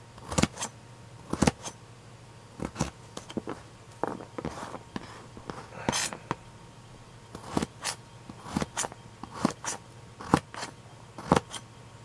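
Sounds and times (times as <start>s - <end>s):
knife slicing carrot on cutting mat: 0.2s - 0.7s, 1.3s - 1.8s, 7.4s - 11.6s.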